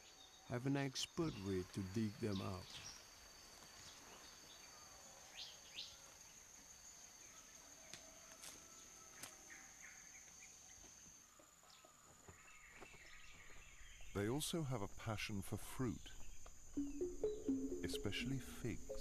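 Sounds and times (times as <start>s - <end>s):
insect drone: 0.0s - 19.0s
bird chirps: 11.6s - 19.0s.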